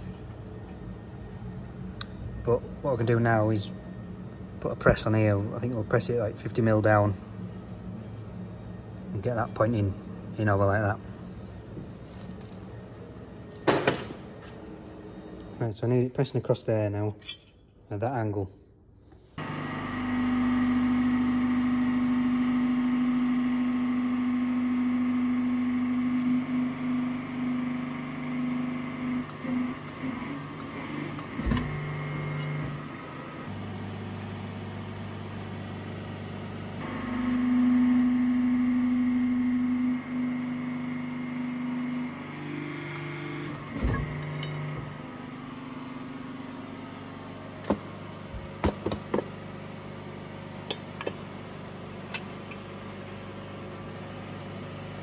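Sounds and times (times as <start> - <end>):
press brake machine hum: 19.4 - 55.0.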